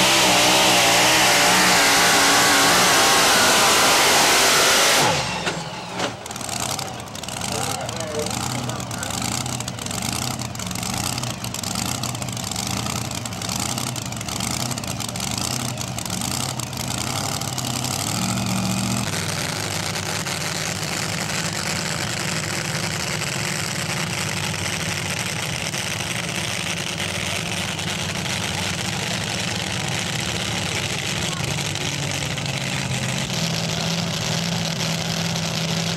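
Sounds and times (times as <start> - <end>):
distant truck engine running hard: 0.0 - 35.9
truck engine idling and revving: 0.0 - 35.9.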